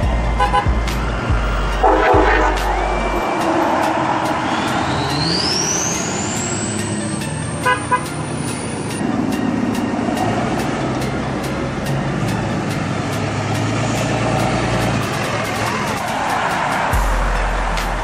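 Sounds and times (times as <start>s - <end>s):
high whine rising in pitch: 0.0s - 9.6s
trucks and traffic passing: 0.0s - 18.0s
vehicle horn toots: 0.4s - 0.7s, 1.7s - 5.8s, 7.5s - 8.4s.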